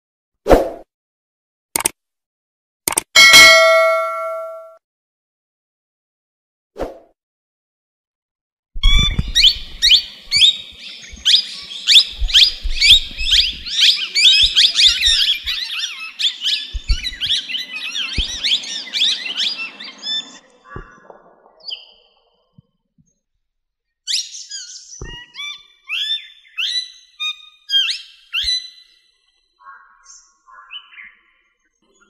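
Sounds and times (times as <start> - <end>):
low bumps: 8.8 - 15.6, 16.7 - 17.5, 18.1 - 18.6
many birds chirping: 8.8 - 22.5, 24.1 - 32.0.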